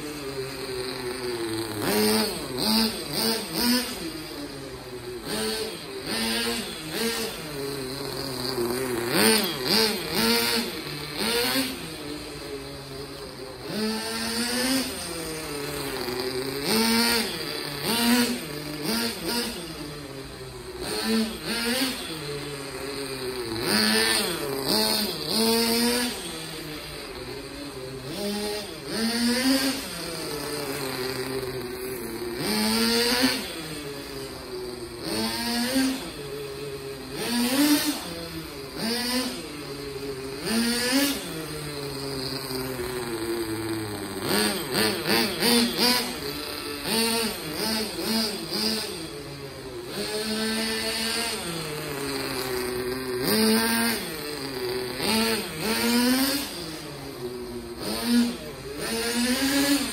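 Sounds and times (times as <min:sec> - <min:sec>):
toy car motor whining: 0:00.0 - 0:59.9.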